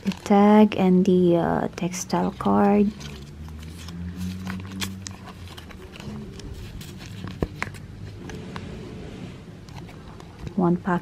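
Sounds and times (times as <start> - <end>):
wallet rustling: 0.0 - 0.6, 1.8 - 8.4.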